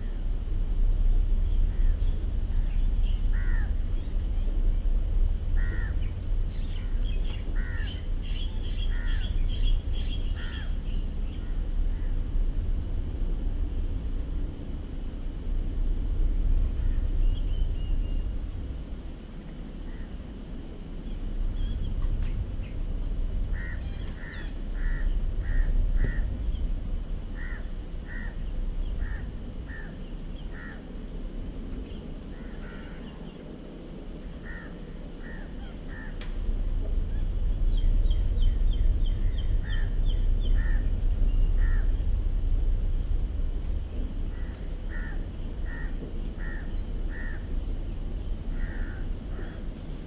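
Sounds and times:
low rumble: 0.0 - 50.0
crows cawing: 3.3 - 3.8, 5.6 - 6.1, 6.8 - 8.1, 8.8 - 9.4, 10.3 - 12.1, 23.5 - 26.4, 27.3 - 30.9, 32.3 - 33.2, 34.4 - 36.3, 39.6 - 40.9, 41.6 - 42.0, 44.3 - 47.6, 48.5 - 49.7.

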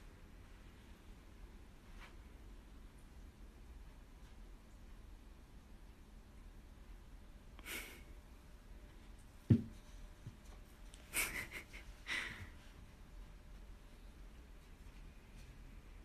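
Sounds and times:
cat thumping on shelf: 9.5 - 9.8.

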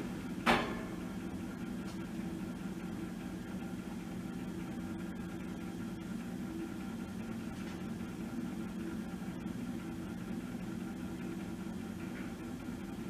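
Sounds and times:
loud metal clunk: 0.4 - 1.0.

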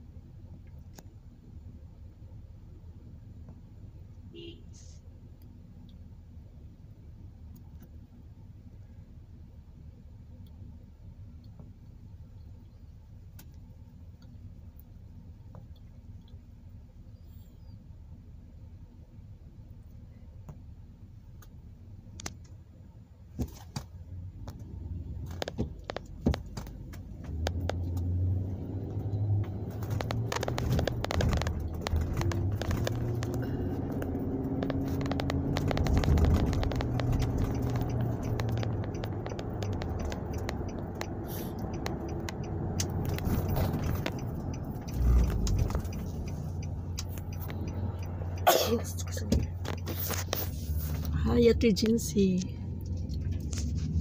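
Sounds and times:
car engine and road rumble: 0.0 - 54.0
clicks and scrapes: 29.7 - 42.0, 49.4 - 51.1.

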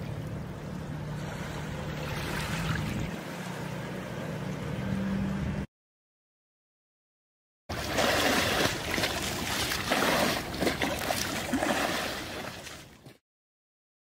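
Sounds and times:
sea water splashing: 0.0 - 4.4, 7.7 - 13.2.

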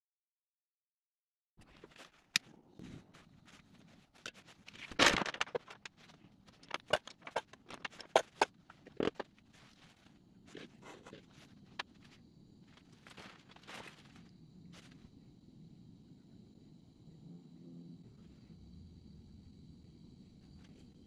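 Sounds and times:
crayons clicking on wooden bench: 1.6 - 12.0.

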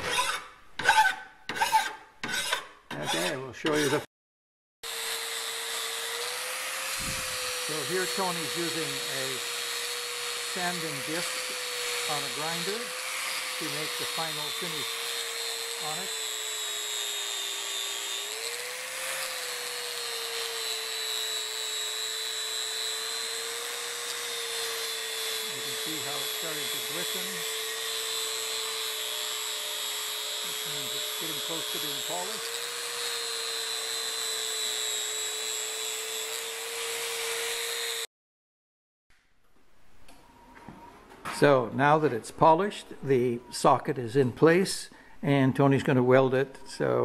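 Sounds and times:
angle grinder sanding steel: 0.0 - 4.1, 4.8 - 38.1.

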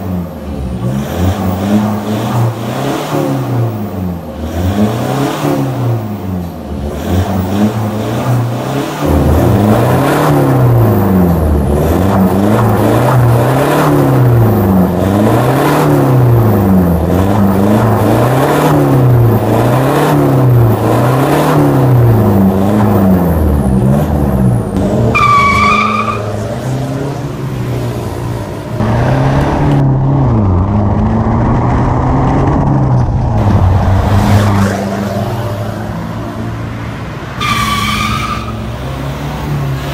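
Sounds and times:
van engine revving: 0.0 - 39.9.

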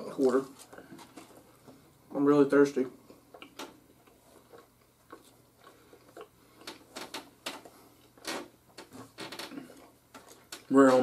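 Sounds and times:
crunchy food being chewed: 3.0 - 8.2.

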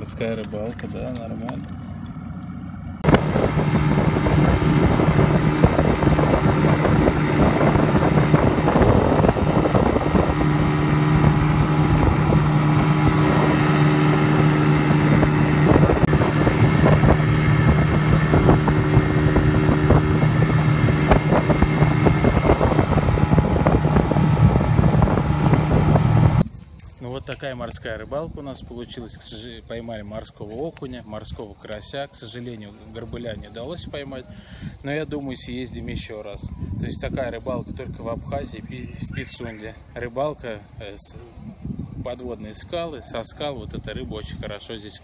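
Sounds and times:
motorboat engine hum: 0.0 - 27.0
rush of wind and water: 3.0 - 28.6.

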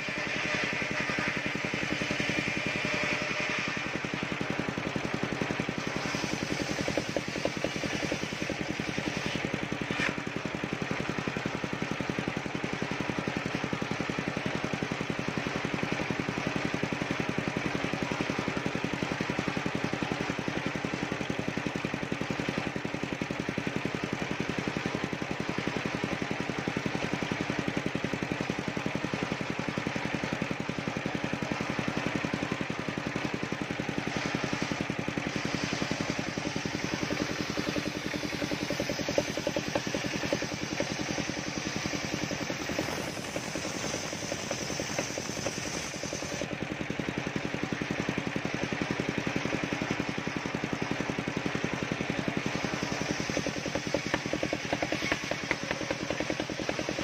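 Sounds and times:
circular saw engine hum: 0.0 - 11.5, 28.9 - 46.6, 50.2 - 57.0
saw blade ripping wood: 5.5 - 10.4, 34.2 - 46.4, 52.6 - 57.0.

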